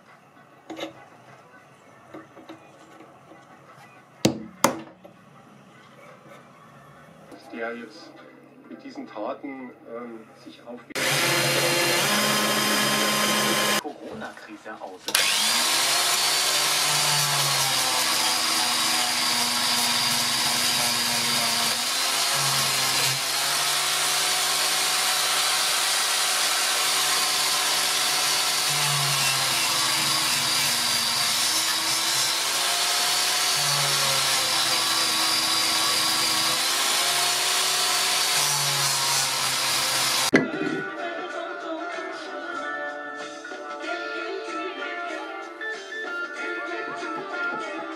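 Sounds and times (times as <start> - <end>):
angle grinder grinding steel: 11.0 - 13.8, 15.1 - 40.4.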